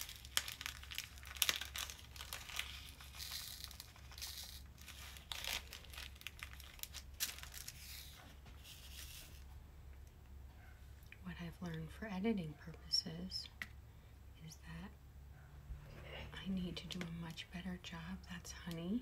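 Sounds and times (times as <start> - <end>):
beads rattling on plastic tray: 0.0 - 6.7
plastic bag crinkling: 0.0 - 9.5.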